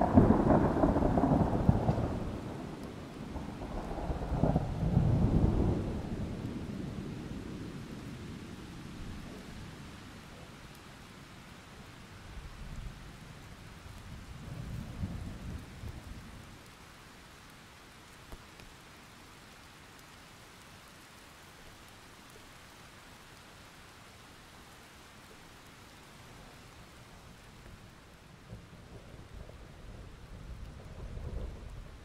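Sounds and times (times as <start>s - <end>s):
thunder rumble: 0.0s - 8.4s, 28.4s - 32.0s
steady rain hissing: 0.0s - 32.0s.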